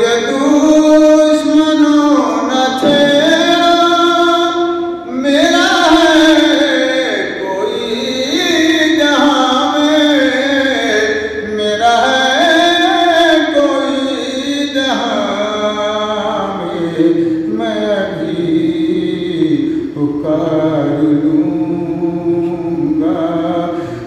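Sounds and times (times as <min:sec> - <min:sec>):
elderly man singing devotional song: 0:00.0 - 0:24.0.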